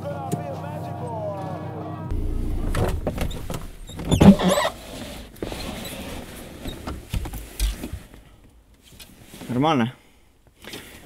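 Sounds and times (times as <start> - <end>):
car engine idling: 2.1 - 5.6
dull thumps: 2.1 - 7.9
car window glass squeaking: 2.4 - 7.0.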